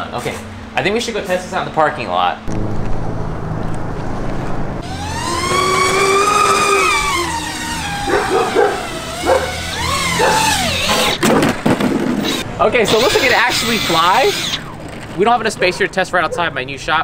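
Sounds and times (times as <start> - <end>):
electric motor whine: 4.8 - 11.3, 12.1 - 15.6.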